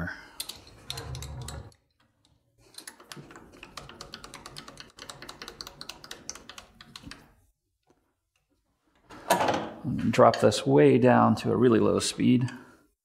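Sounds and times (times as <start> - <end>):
metal tooling clicks and clatter: 0.4 - 7.3.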